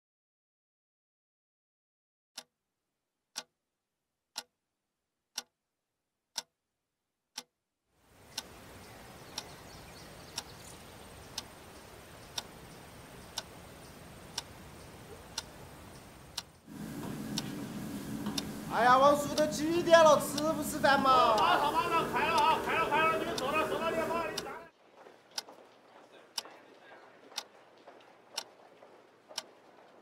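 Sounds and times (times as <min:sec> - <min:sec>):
steady background noise: 0:08.1 - 0:30.0
clock ticking: 0:08.2 - 0:09.6, 0:10.3 - 0:24.7, 0:25.3 - 0:25.7, 0:26.3 - 0:26.6, 0:27.2 - 0:29.9.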